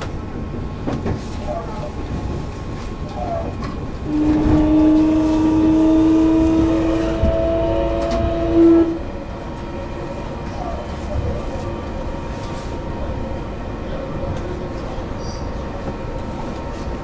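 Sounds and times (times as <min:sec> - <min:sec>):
electric train on rails: 0:00.0 - 0:17.0
train horn: 0:04.0 - 0:09.2.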